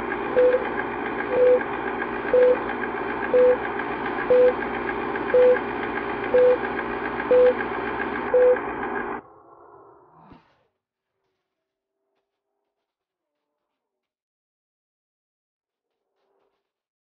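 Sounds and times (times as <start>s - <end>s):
film projector rattling: 0.0s - 9.2s
short beeps: 1.3s - 1.6s, 2.3s - 2.6s, 3.3s - 3.6s, 4.3s - 4.6s, 5.3s - 5.6s, 6.4s - 6.6s, 7.3s - 7.6s, 8.3s - 8.6s.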